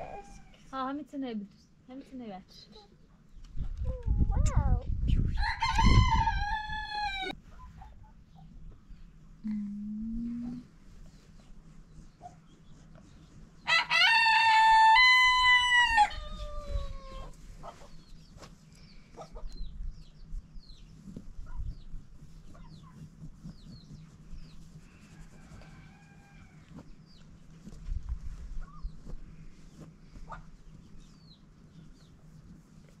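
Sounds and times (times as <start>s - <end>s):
rooster crowing: 5.4s - 7.4s, 13.7s - 17.2s.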